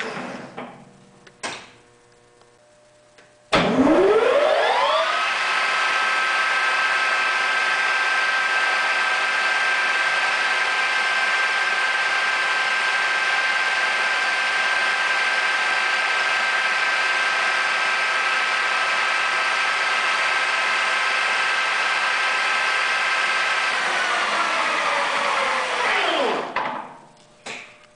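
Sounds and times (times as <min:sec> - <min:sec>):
mechanical hum: 0:00.0 - 0:08.6, 0:23.7 - 0:27.9
lathe motor whine: 0:03.5 - 0:26.8.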